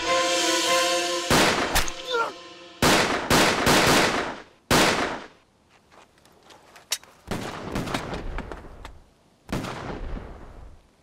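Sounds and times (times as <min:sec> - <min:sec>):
loud gunshot: 0:01.3 - 0:02.0, 0:02.8 - 0:05.3.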